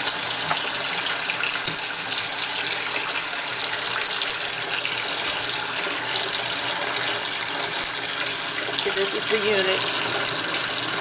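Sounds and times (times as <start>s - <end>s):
tap running into metal sink: 0.4s - 1.9s.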